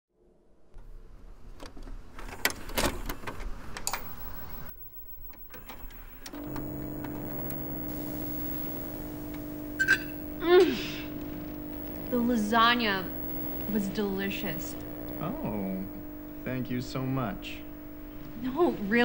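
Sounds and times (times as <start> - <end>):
electronic hum with hiss: 3.9 - 19.0
vcr loading mechanism clicks: 5.2 - 10.1.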